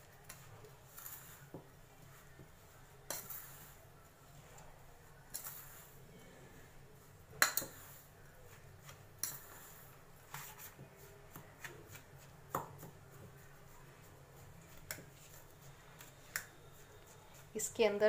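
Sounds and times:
spoon scraping metal bowl: 0.3 - 1.5, 3.1 - 3.8, 5.3 - 6.0.

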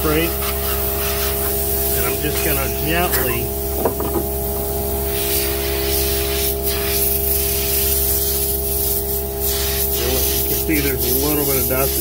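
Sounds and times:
compressed air hissing: 0.0 - 12.0
steady hum: 0.0 - 12.0.

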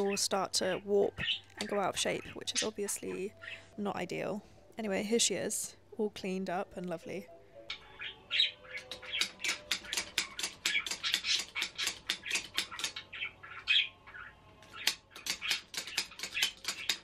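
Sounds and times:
budgerigar chirping: 0.0 - 3.7, 7.7 - 17.0.

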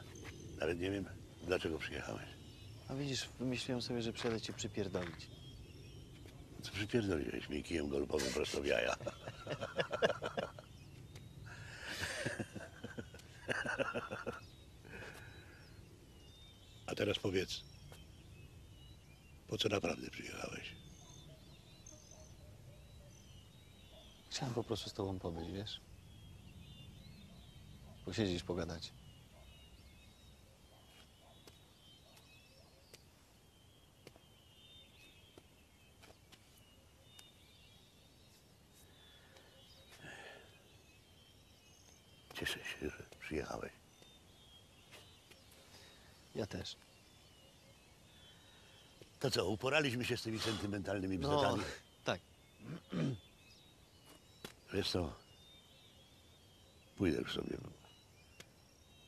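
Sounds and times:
faint bird chirps: 0.0 - 59.0
men laughing: 8.1 - 10.8, 11.5 - 15.5.

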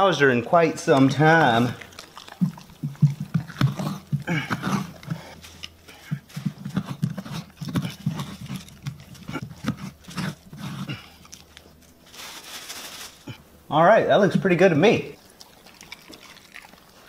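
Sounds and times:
dog chewing wet chomps: 0.3 - 12.0, 15.1 - 17.0.

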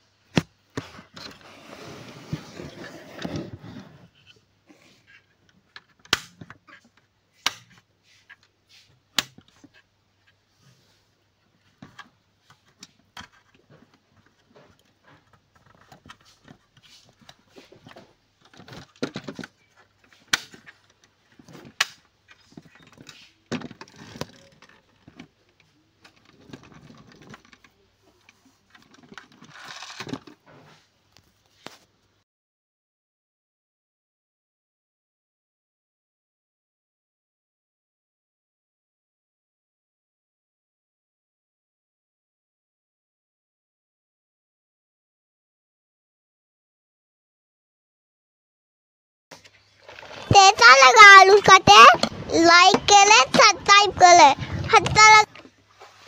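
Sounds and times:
scraping across cardboard: 0.8 - 4.4.

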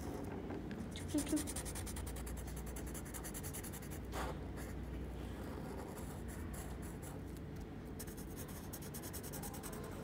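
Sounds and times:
marker scratching on paper: 1.0 - 4.8, 8.0 - 10.0.

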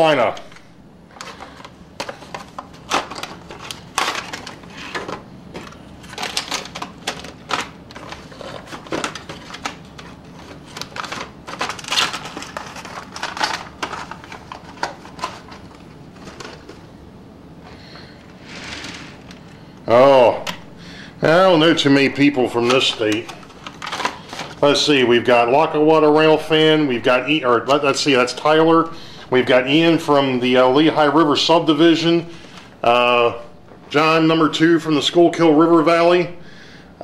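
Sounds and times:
cardboard rustling: 1.1 - 16.9.

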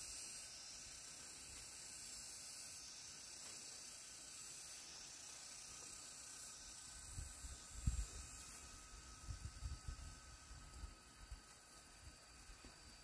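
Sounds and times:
faint high hiss: 0.0 - 13.0.

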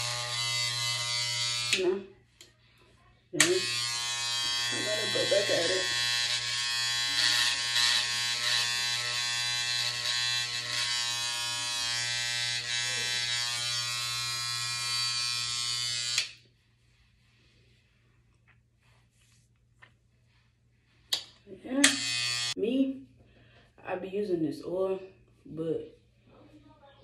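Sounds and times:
electric hair trimmer buzzing: 0.0 - 2.0, 3.4 - 16.4, 21.8 - 22.6.

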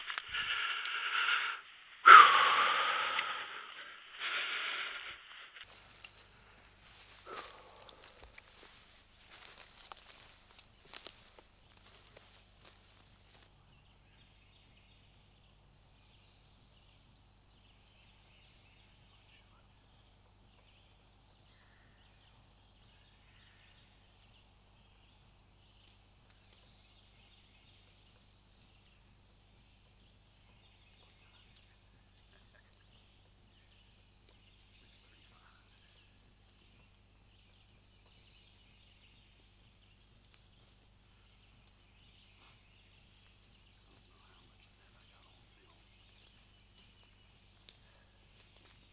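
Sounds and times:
high insect drone: 0.0 - 13.5
songbird singing: 0.0 - 48.9.

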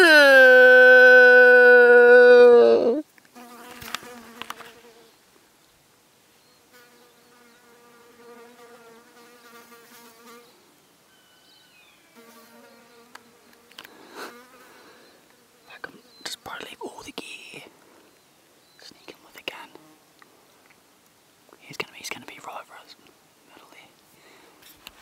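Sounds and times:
insect buzzing: 0.0 - 5.2, 6.7 - 10.6, 12.0 - 16.5.

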